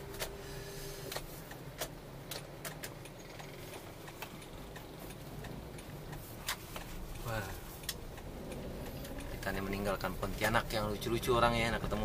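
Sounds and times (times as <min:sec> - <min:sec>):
engine and road hum: 0:00.0 - 0:12.0
turn signal ticking: 0:01.0 - 0:12.0.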